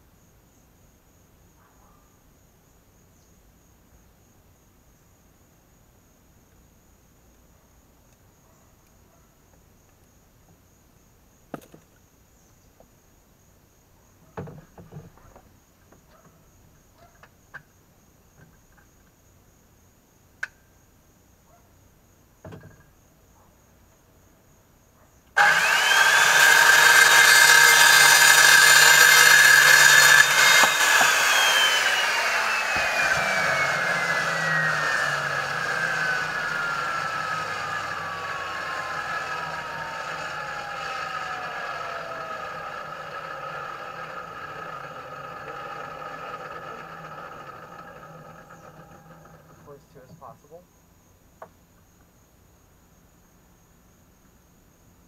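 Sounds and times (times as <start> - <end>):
power saw cutting pipe: 25.4 - 49.8
saw blade winding down whine: 25.4 - 50.1.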